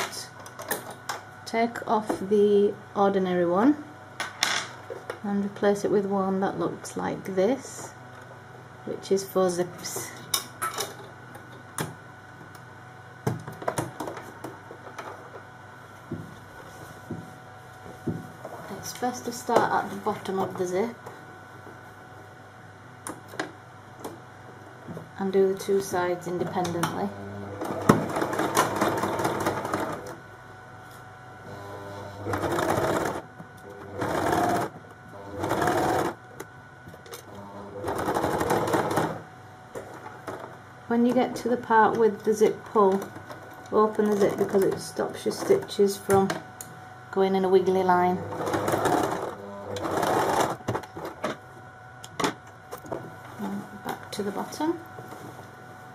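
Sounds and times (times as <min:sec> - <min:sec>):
sewing machine stitching: 0:27.6 - 0:30.2, 0:31.5 - 0:33.2, 0:33.8 - 0:36.2, 0:37.4 - 0:39.2, 0:48.1 - 0:50.6.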